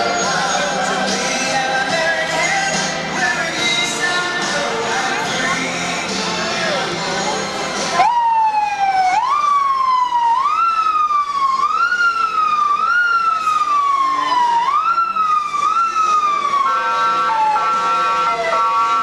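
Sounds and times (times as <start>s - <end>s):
vehicle siren wailing: 8.0s - 19.0s
horn blasts: 16.5s - 19.0s.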